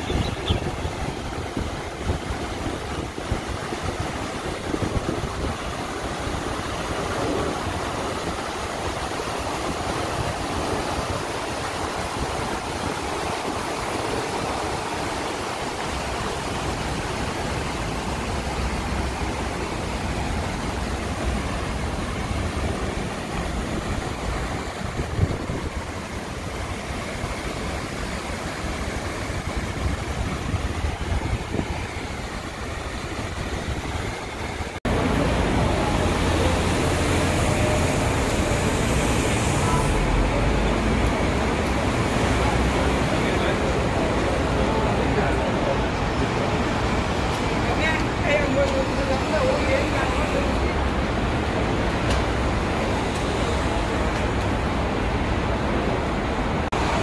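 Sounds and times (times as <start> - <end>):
city traffic hum: 0.0 - 57.0
fountain water splashing: 0.0 - 57.0.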